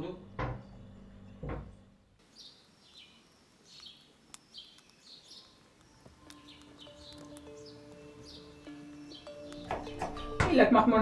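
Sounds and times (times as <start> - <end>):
budgerigar chirping: 2.4 - 10.4.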